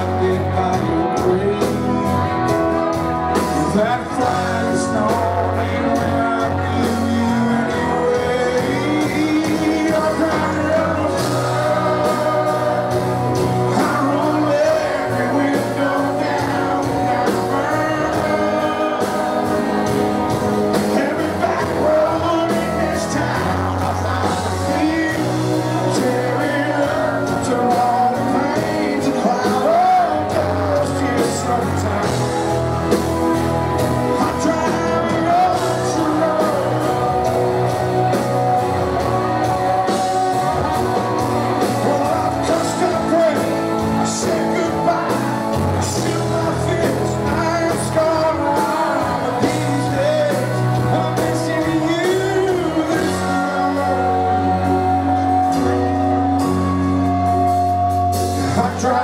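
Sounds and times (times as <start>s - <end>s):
live country band: 0.0s - 59.0s
man singing: 0.0s - 59.0s.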